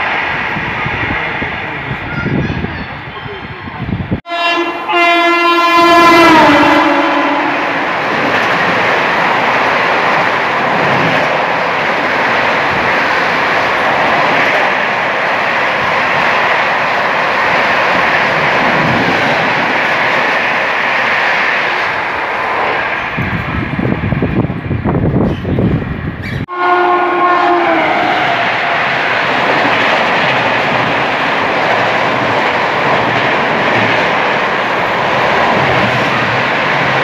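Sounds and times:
rush of train wheels and air: 0.0 - 4.4, 6.2 - 26.6, 27.2 - 37.0
train horn: 4.2 - 7.8, 26.5 - 28.6.

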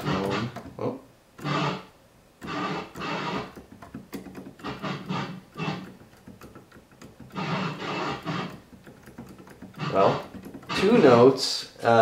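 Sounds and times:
synthesizer string notes: 0.0 - 0.6, 9.8 - 11.0.

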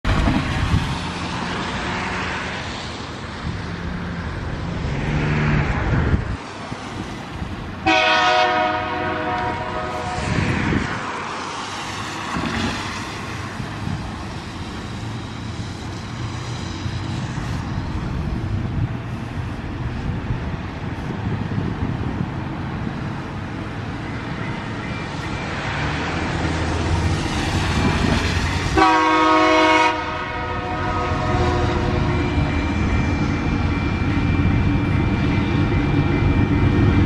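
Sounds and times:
locomotive horn blast: 7.8 - 10.5, 28.7 - 32.5.

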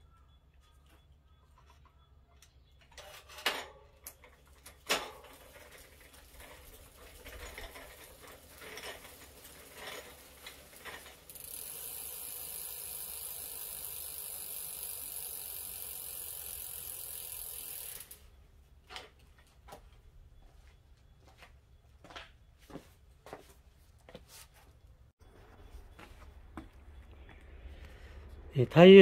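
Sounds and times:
clicks and knocks of repair work: 1.6 - 5.8.

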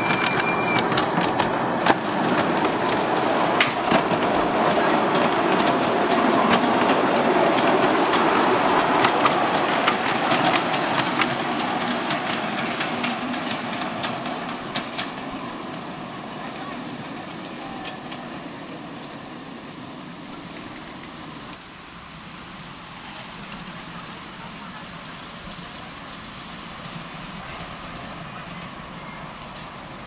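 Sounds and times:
wheels clicking over rail joints: 0.0 - 21.6
miniature train rolling on track: 0.0 - 30.0.

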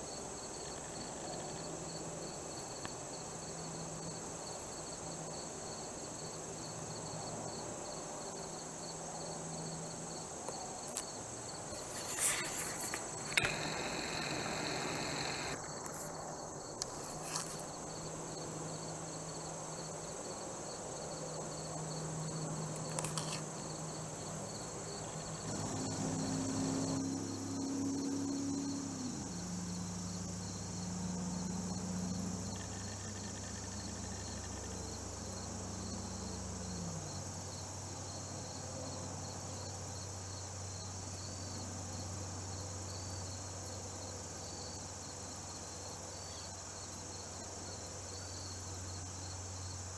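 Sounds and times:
crickets and insects chirping: 0.0 - 49.9
low humming drone: 11.8 - 15.6
faint clicks: 12.8 - 16.0.

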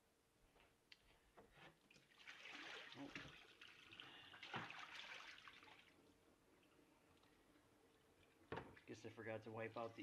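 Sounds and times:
water pouring into a sink: 2.0 - 6.0.

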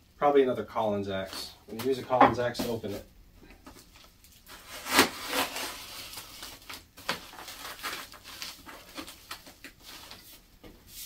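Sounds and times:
plastic wrap crinkling and tearing: 3.8 - 10.4.

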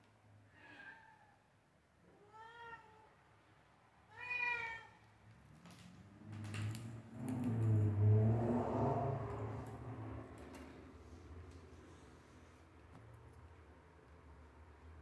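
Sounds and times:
cat meowing: 2.2 - 3.1, 4.1 - 5.0.

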